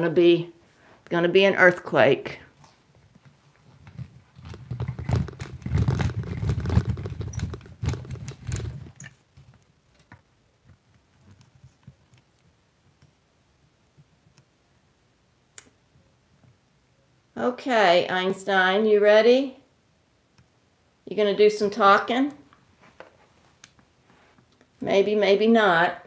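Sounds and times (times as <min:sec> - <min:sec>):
tripod knocking and rattling: 0:03.8 - 0:12.0.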